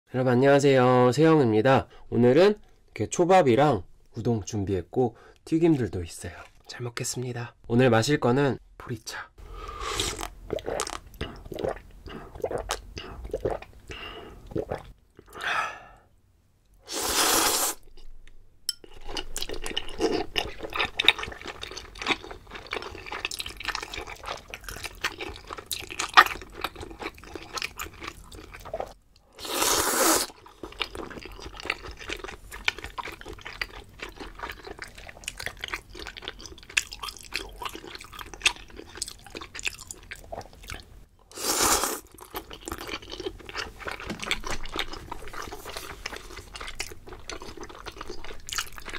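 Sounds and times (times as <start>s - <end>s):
slurping noodles: 9.6s - 13.7s, 16.8s - 17.9s, 28.6s - 30.4s, 41.3s - 46.7s
gulping drink: 9.9s - 15.5s
chewing with wet clicks: 18.7s - 29.0s, 30.4s - 40.9s, 42.1s - 48.9s.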